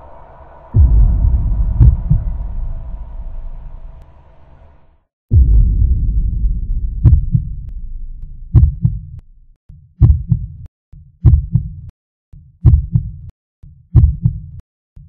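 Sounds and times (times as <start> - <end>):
heartbeat thumps: 0.8 - 3.8, 5.3 - 9.3, 10.0 - 11.8, 12.6 - 13.2, 13.9 - 14.4.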